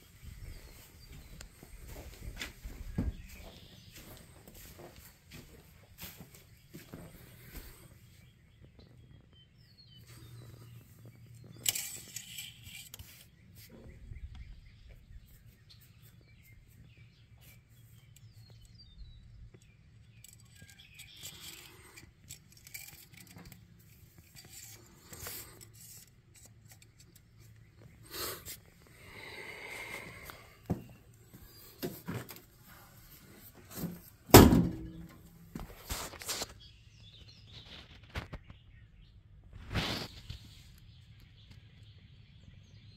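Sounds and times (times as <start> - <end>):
loud thump: 34.3 - 35.1.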